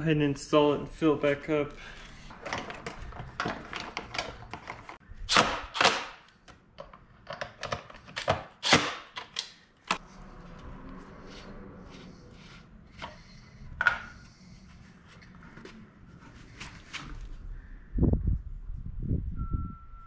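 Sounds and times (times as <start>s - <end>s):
plastic parts clicking and knocking: 2.3s - 5.0s, 5.8s - 10.0s.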